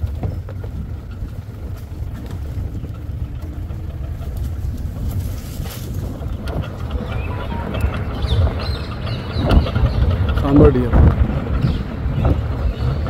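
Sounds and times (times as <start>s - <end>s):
road and wind noise: 0.0s - 13.0s
vehicle engine rumbling: 0.0s - 13.0s.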